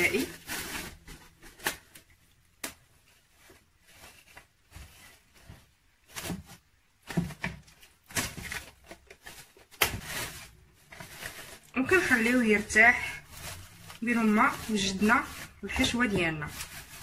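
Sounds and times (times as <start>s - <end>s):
cling film crinkling: 7.9s - 17.0s.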